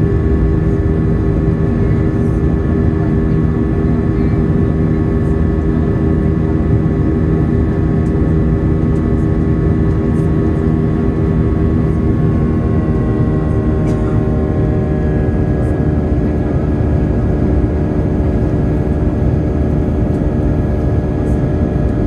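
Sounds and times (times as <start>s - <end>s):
jet engine and airflow roar: 0.0s - 22.0s.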